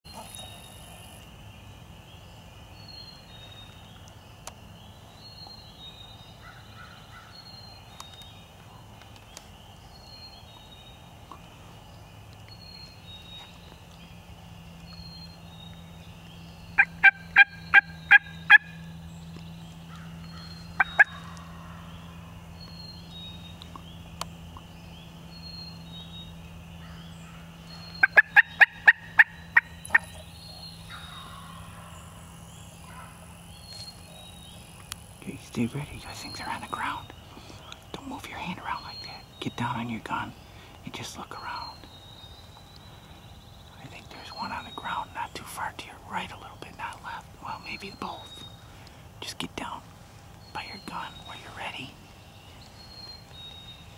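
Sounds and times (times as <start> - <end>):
turkey yelping: 16.8 - 18.8, 28.0 - 31.9.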